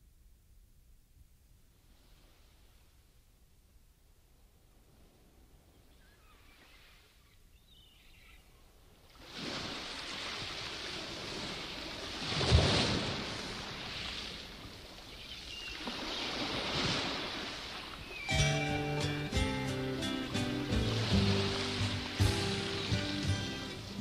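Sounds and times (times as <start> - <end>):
surf breaking over rocks: 9.2 - 15.0, 15.8 - 24.0.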